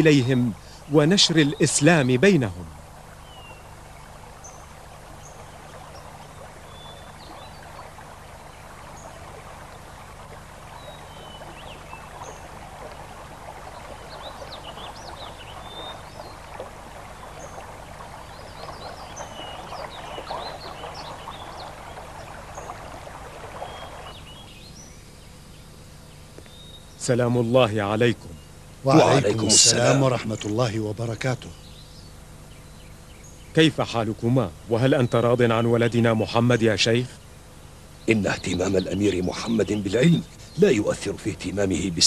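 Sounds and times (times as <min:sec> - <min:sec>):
running water: 0:00.0 - 0:42.0
steady low hum: 0:00.0 - 0:42.0
high bird chirps: 0:18.3 - 0:22.8.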